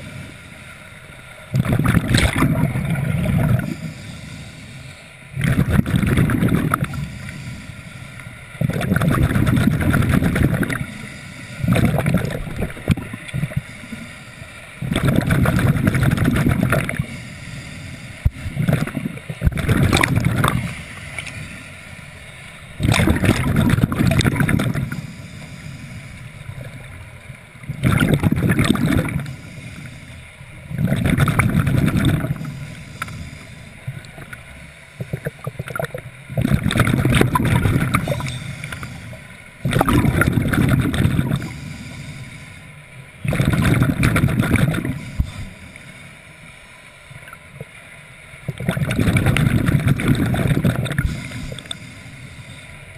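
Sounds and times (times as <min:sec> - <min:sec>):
regulator hiss: 0:00.0 - 0:52.9
exhaled bubbles gurgling underwater: 0:01.4 - 0:14.1, 0:14.7 - 0:42.5, 0:43.1 - 0:45.8, 0:48.4 - 0:52.6.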